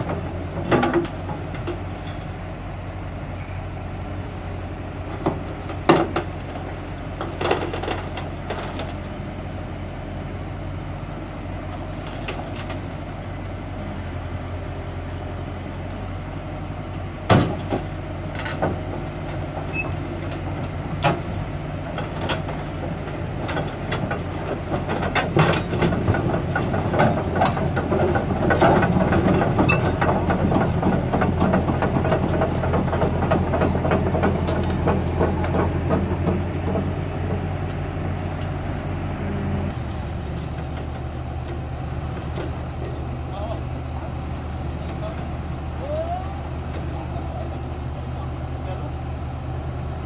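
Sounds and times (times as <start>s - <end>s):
diesel engine running: 0.0s - 50.0s
steel tracks clanking: 17.3s - 38.6s.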